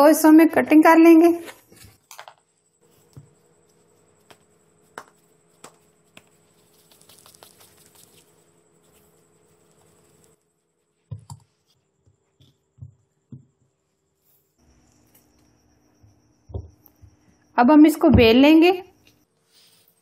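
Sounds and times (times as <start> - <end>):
hands tapping dough: 4.2 - 6.4.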